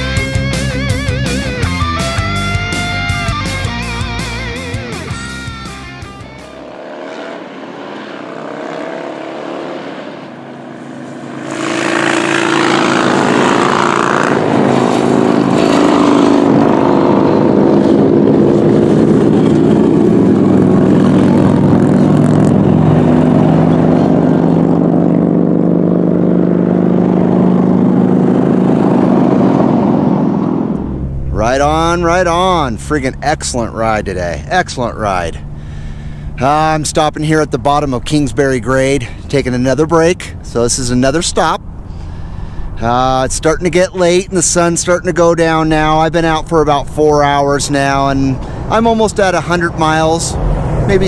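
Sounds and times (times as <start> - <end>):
wind rush: 9.4 - 25.7, 50.0 - 51.0
motorcycle engine running: 10.4 - 33.8.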